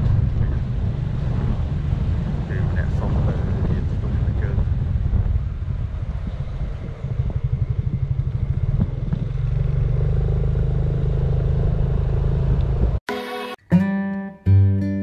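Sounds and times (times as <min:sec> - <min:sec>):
road and wind noise: 0:00.0 - 0:13.0
scooter engine running: 0:04.7 - 0:13.0.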